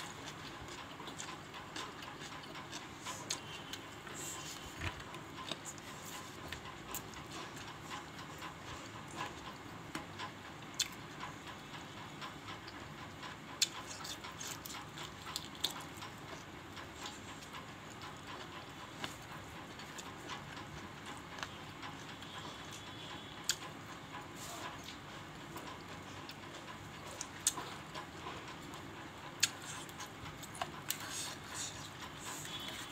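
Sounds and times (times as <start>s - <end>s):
chewing and mouth smacks: 24.5s - 28.1s, 29.4s - 32.9s.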